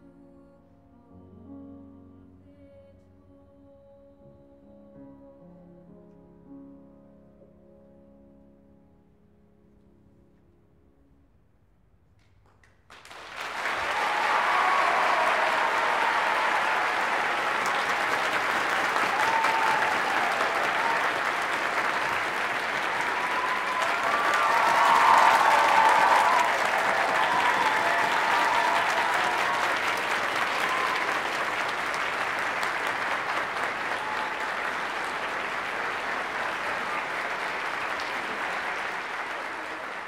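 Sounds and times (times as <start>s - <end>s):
audience applauding: 12.6s - 40.0s.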